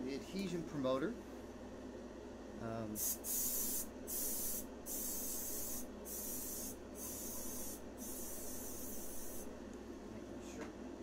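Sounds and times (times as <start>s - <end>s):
compressed air hissing: 3.0s - 9.5s.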